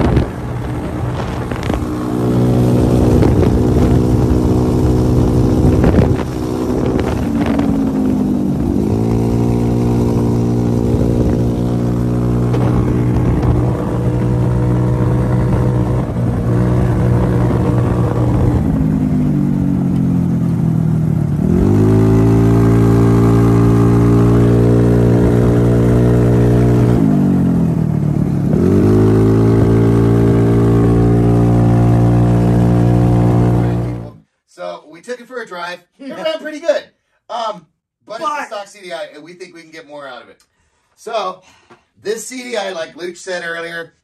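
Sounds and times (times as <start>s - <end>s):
buggy engine revving: 0.0s - 34.2s.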